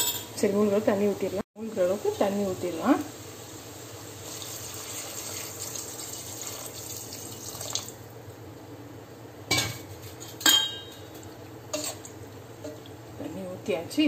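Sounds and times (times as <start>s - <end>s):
water pouring into a pot: 3.7s - 8.1s.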